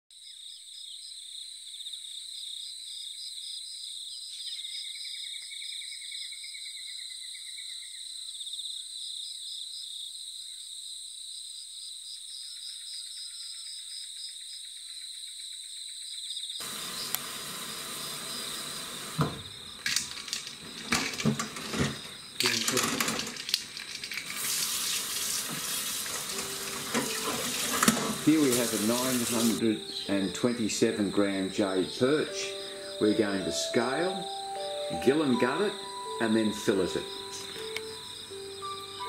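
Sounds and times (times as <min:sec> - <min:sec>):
lower insect chirping call: 0:00.1 - 0:22.7, 0:23.4 - 0:39.0
insects chirping trill: 0:00.2 - 0:39.0
loud hiss: 0:16.6 - 0:23.4, 0:24.2 - 0:29.9.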